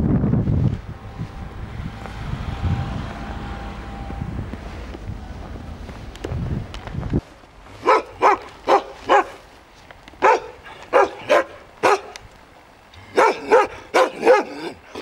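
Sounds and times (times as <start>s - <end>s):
dog barking: 7.8s - 9.4s, 10.2s - 12.2s, 13.1s - 15.0s.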